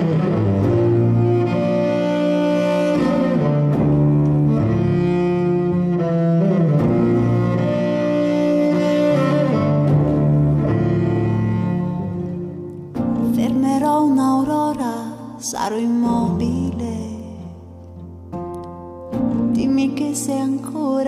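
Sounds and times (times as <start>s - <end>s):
cello bowed in slow held notes: 0.0s - 14.0s.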